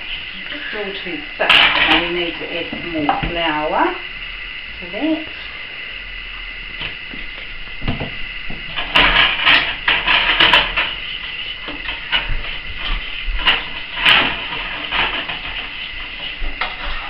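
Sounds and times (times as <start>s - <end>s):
utensil scraping metal saucepan: 0.0s - 3.2s, 8.7s - 17.0s.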